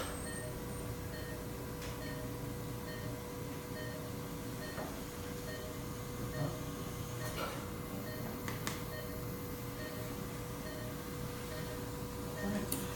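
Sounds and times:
steady electrical hum: 0.0s - 12.9s
patient monitor beeping: 0.1s - 12.9s.

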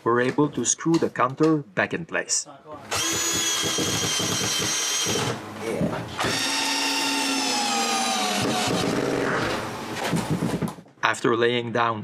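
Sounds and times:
power drill driving screws: 2.9s - 5.4s, 6.2s - 9.6s.

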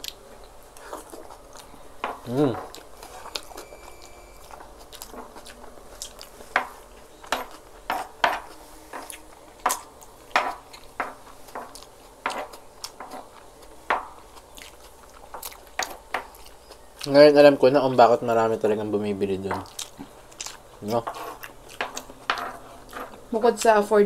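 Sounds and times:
chewing and mouth noises: 0.0s - 7.8s, 8.5s - 17.2s, 19.6s - 22.1s.

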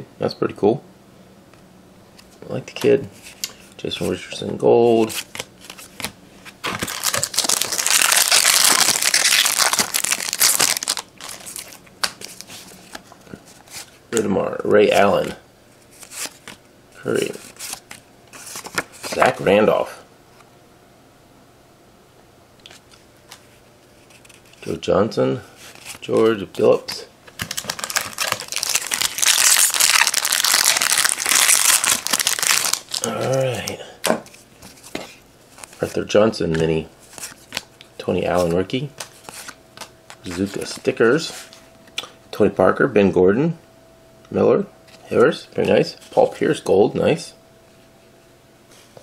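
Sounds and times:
cards clicking and rustling: 5.0s - 14.3s, 16.0s - 16.6s, 17.2s - 19.4s, 26.8s - 41.0s
foil wrapper crinkling: 5.1s - 13.0s, 27.3s - 33.8s.

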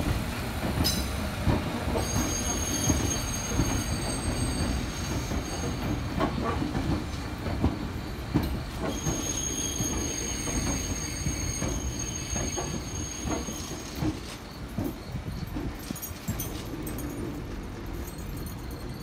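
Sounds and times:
train wheels rumbling and clicking: 0.0s - 19.0s
high-pitched wheel squeal: 8.9s - 13.9s.

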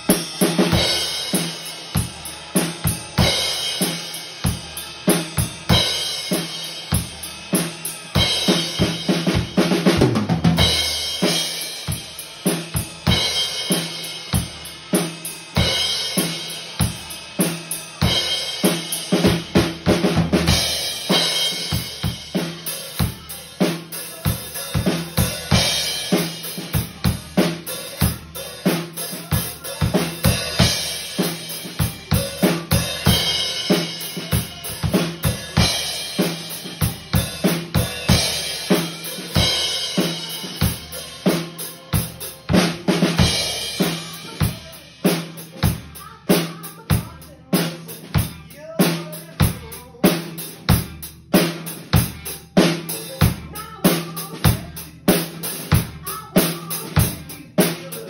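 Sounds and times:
cymbals washing: 10.6s - 45.2s.

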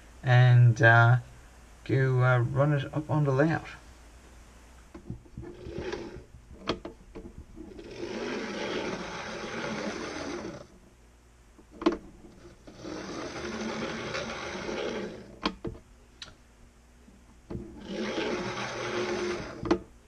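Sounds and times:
electric motor whirring buzz: 7.6s - 10.8s, 12.4s - 15.5s, 17.5s - 19.8s.

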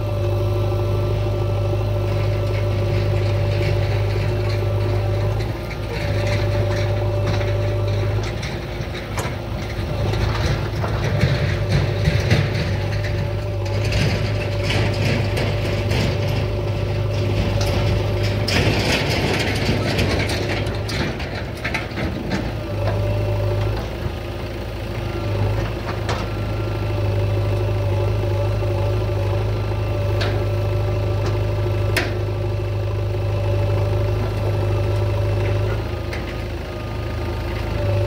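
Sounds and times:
diesel machinery humming: 0.0s - 38.0s
metallic clanks and rattles: 2.1s - 24.3s.

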